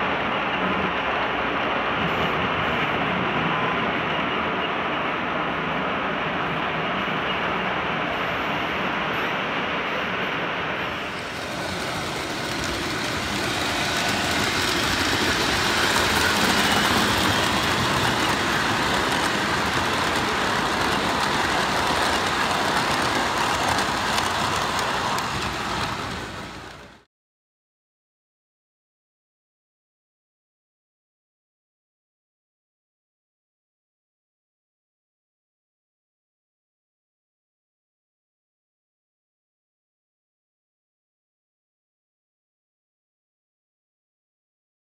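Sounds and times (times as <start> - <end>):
model train motor rumbling: 11.2 - 26.8.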